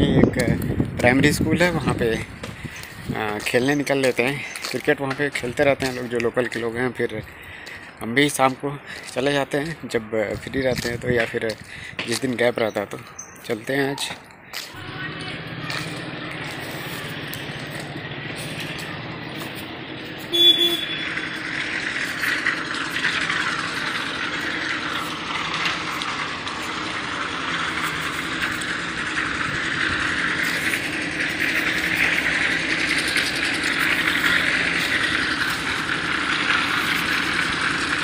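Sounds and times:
vehicle traffic: 0.0 - 38.0
short loud beep: 20.3 - 21.0.

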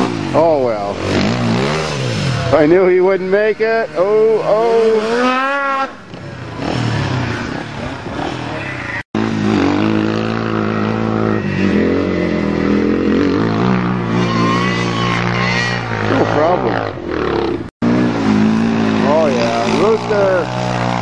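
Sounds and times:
off-road vehicle engine running: 0.0 - 21.0.

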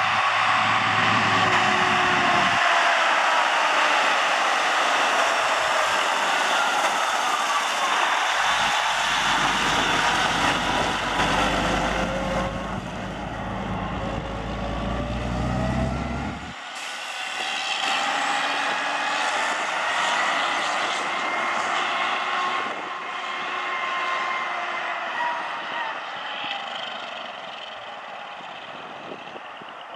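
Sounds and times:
diesel truck engine running: 8.4 - 16.6
deep engine rumble: 8.5 - 16.6.

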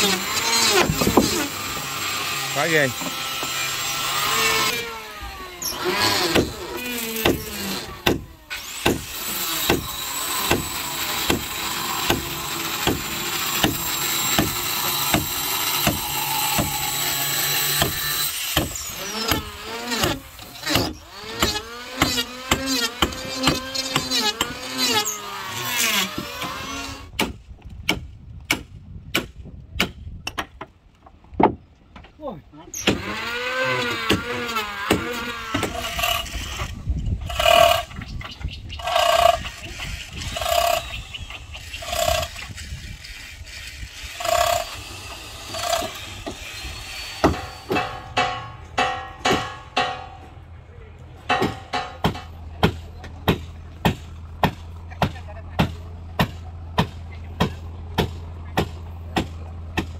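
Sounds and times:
squealing creaking glides: 0.0 - 8.8, 13.4 - 27.1, 32.6 - 50.4
sharp knocks: 47.2 - 50.4, 51.2 - 59.9.

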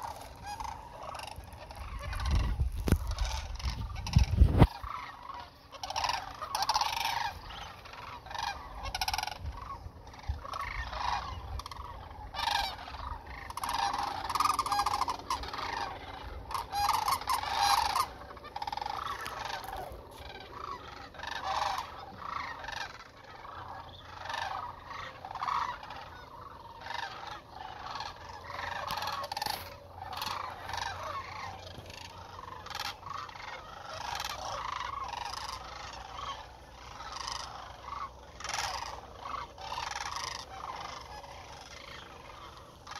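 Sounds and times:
flock of cranes calling: 0.0 - 42.9.

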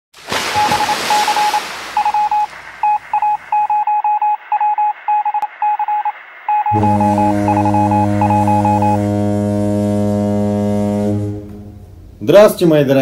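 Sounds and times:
morse code beeps: 0.6 - 9.2.

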